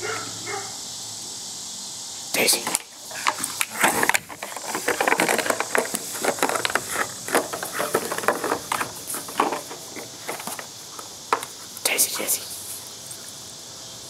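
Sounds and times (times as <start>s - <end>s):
plastic bottle crinkling: 2.6s - 11.5s.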